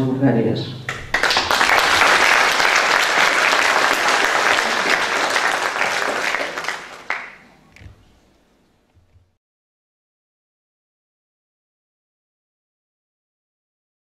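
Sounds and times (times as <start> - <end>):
audience applauding: 0.9 - 7.9.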